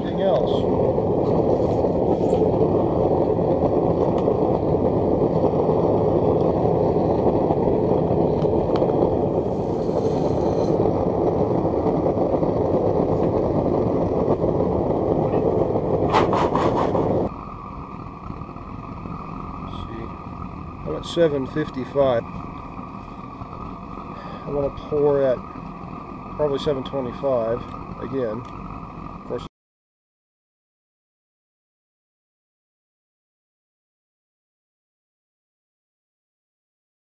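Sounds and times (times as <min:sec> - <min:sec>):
furnace burner rushing: 0:00.0 - 0:29.5.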